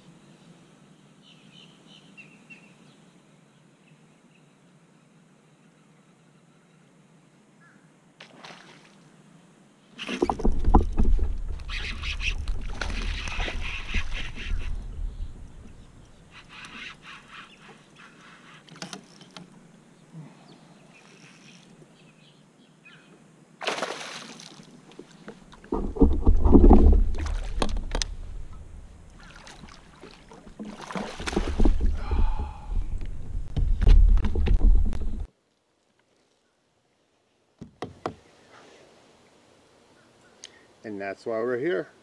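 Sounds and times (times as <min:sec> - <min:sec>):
deep rumble: 0:12.4 - 0:16.2, 0:25.7 - 0:29.3, 0:31.4 - 0:35.3
fish splashing at surface: 0:23.6 - 0:24.6, 0:29.1 - 0:32.0.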